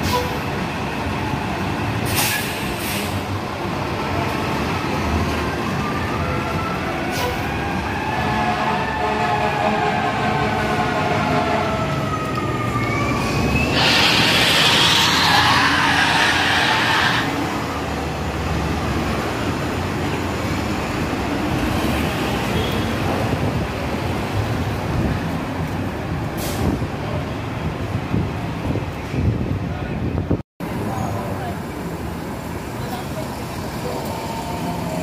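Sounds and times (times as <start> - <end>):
bus drive whine: 0.0 - 35.0
street traffic noise: 0.0 - 35.0
loud bus hiss: 2.0 - 3.4, 13.5 - 17.6, 26.4 - 26.8.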